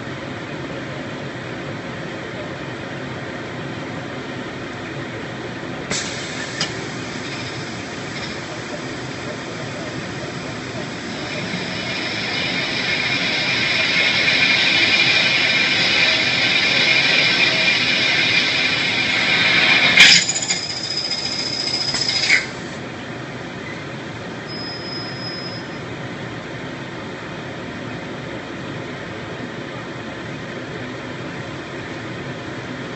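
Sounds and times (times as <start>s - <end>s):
plasma cutter hissing: 5.9s - 22.8s.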